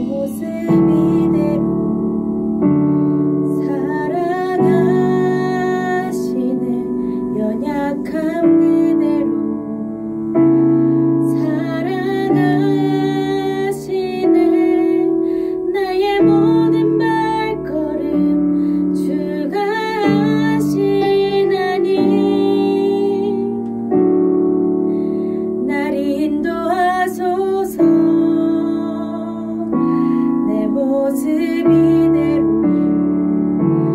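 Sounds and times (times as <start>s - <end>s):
person singing worship song: 0.0s - 2.1s, 2.9s - 9.8s, 10.4s - 23.8s, 25.2s - 32.9s
piano chords: 0.0s - 33.9s.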